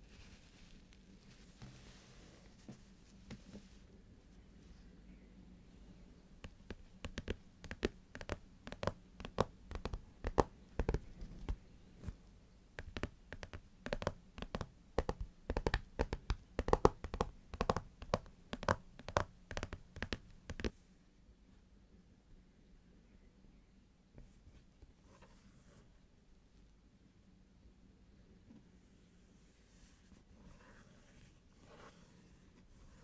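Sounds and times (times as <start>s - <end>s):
fingernails tapping on cardboard: 6.4s - 11.1s, 12.8s - 20.7s.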